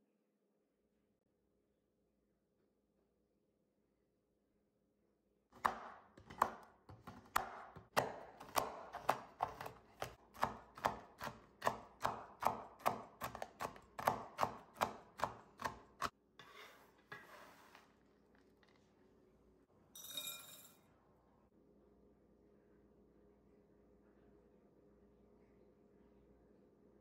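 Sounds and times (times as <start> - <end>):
knife chopping on wooden board: 5.6 - 16.1
knife scraping board: 15.6 - 17.9.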